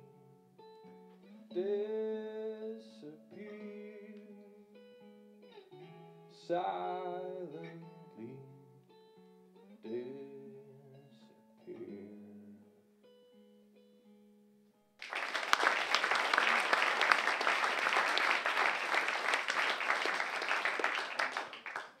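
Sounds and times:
plucked guitar notes: 0.0 - 14.6
audience applause: 15.0 - 22.0.

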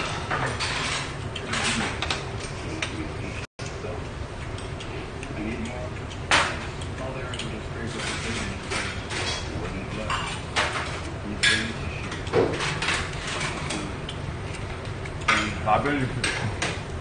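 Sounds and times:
restaurant background hum: 0.0 - 17.0
chopsticks clinking on plates: 4.4 - 16.9.

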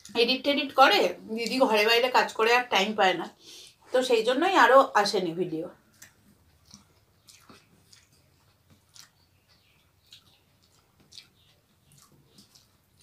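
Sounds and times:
people chewing: 5.8 - 13.0
soft mouth clicks and smacks: 5.8 - 13.0.

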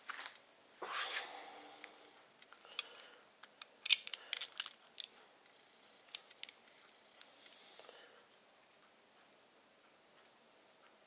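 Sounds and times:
metal parts clicking and knocking: 2.4 - 5.2, 6.1 - 6.6.

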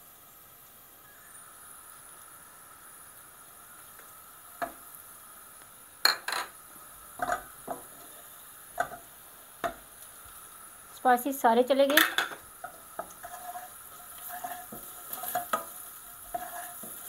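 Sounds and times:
onions sizzling in oil: 0.0 - 17.0
wooden spoon knocking on pan: 7.2 - 7.9, 8.8 - 9.0, 9.6 - 9.9, 14.7 - 17.0.

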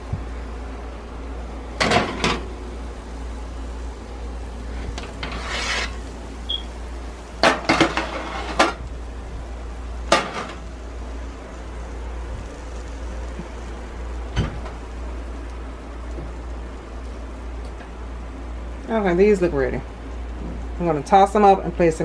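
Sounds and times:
low steady hum: 0.0 - 22.0
pan scraping: 4.8 - 6.1, 7.4 - 8.8.

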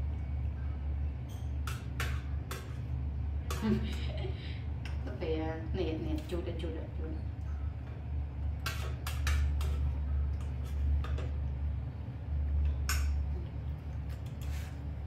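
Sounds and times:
low hum: 0.0 - 15.0
spoon scraping in metal bowl: 14.1 - 14.9.

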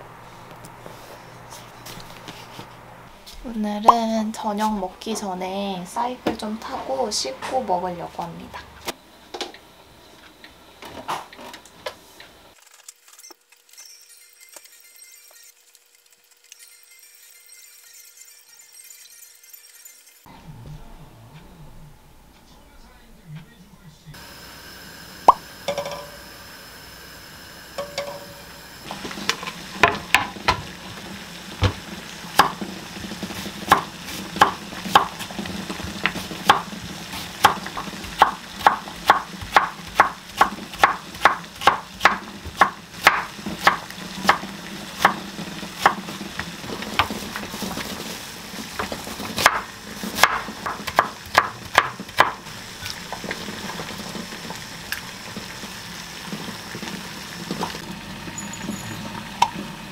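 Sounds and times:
low steady hum: 20.3 - 30.2
knife chopping on wooden board: 37.4 - 44.4, 49.4 - 52.4.

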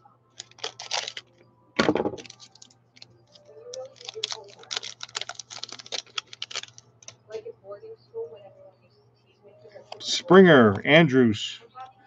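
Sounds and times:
foil wrapper crackling and tearing: 0.4 - 1.3, 2.2 - 7.2.

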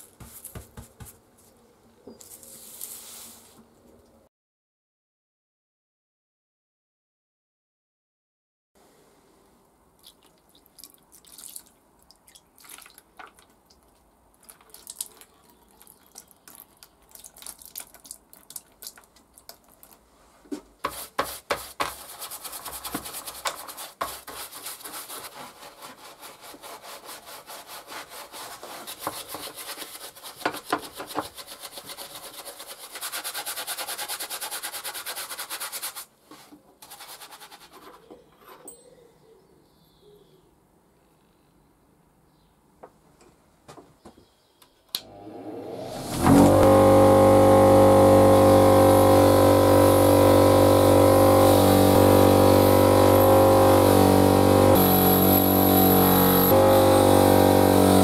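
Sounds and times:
brush scrubbing metal parts: 20.9 - 38.1.

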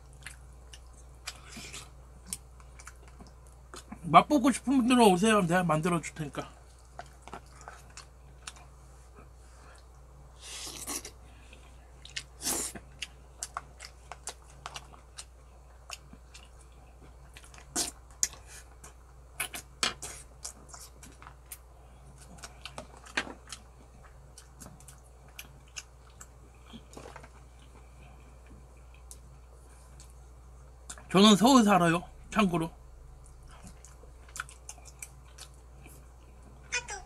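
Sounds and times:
chewing and lip smacks: 0.0 - 4.0, 6.6 - 8.7, 10.7 - 30.2, 33.2 - 36.5.

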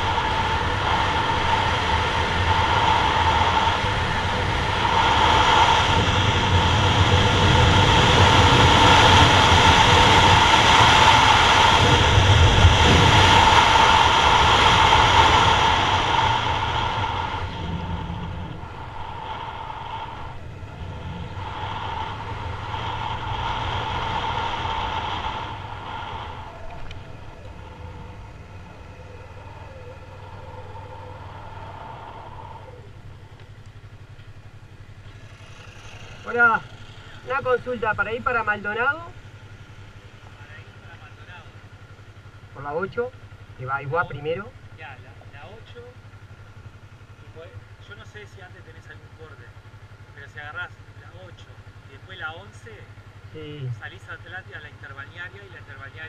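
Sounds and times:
wind rush: 0.0 - 33.0
motorcycle engine running: 0.0 - 56.0.

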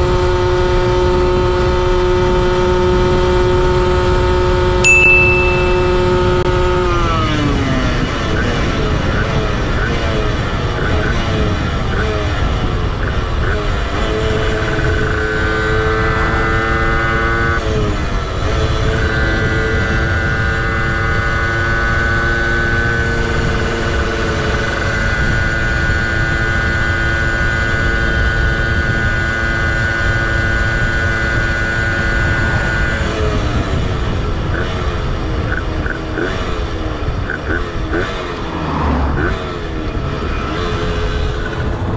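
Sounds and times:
moped engine at high revs: 0.0 - 41.9
wind rush: 30.6 - 34.6, 37.8 - 41.9.

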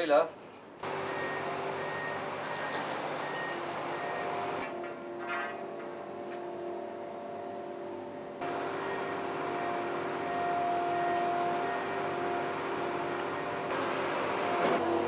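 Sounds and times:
container crane machinery drone: 0.8 - 15.0
metallic clatter: 4.6 - 6.0.

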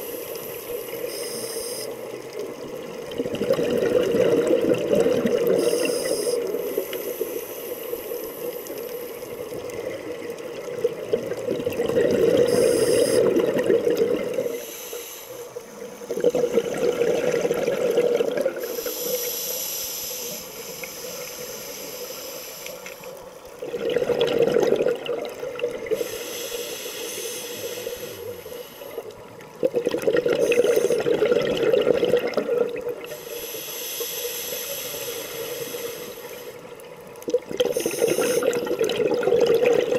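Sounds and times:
regulator breathing hiss: 0.0 - 2.2, 5.6 - 9.6, 12.4 - 13.3, 14.5 - 16.8, 18.6 - 23.4, 25.9 - 29.2, 30.4 - 31.1, 33.0 - 36.7, 37.7 - 38.6
bubbling exhalations: 3.0 - 5.9, 10.8 - 14.6, 16.1 - 18.9, 23.6 - 26.1, 29.6 - 33.2, 37.3 - 39.9.

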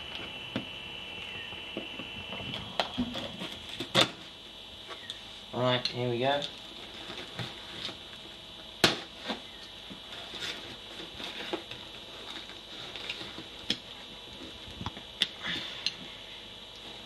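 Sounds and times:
cardboard rustling and scraping: 3.0 - 4.3, 6.8 - 8.1, 9.0 - 13.6.

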